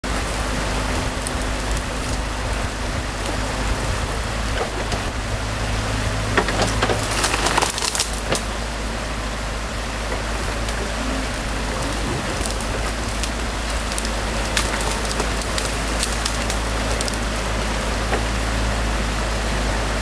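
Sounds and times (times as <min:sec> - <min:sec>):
excavator engine idling: 0:00.0 - 0:20.0
stream water rushing and splashing: 0:00.0 - 0:20.0
sharp crackles and snaps: 0:01.0 - 0:03.4, 0:06.4 - 0:08.5, 0:10.6 - 0:18.4.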